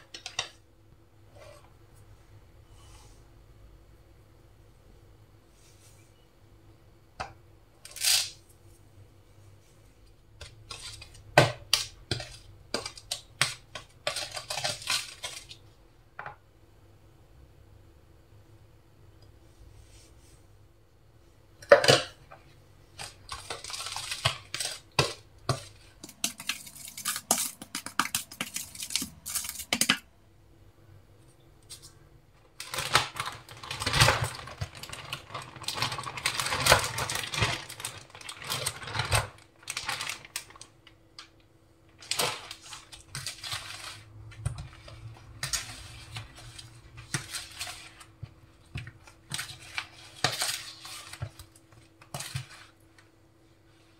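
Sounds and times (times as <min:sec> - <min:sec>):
faint steady hum: 0:00.0 - 0:53.9
fish pieces turned in coating: 0:10.4 - 0:15.6, 0:22.9 - 0:30.1
spoon stirring and scraping bowl: 0:10.4 - 0:15.6, 0:21.6 - 0:30.0, 0:42.2 - 0:53.9.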